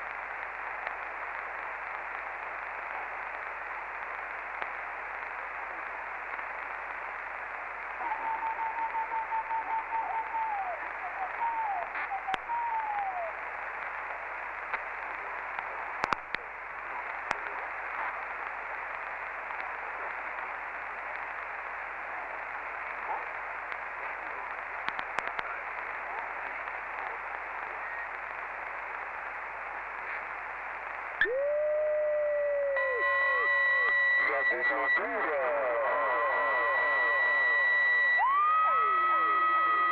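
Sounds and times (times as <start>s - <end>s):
radio static: 0.0s - 39.9s
clicks and crackles: 0.4s - 2.2s, 4.4s - 4.8s, 13.7s - 21.8s, 22.4s - 31.1s
radio whistling tones: 8.0s - 13.4s, 27.0s - 28.2s, 31.2s - 39.9s.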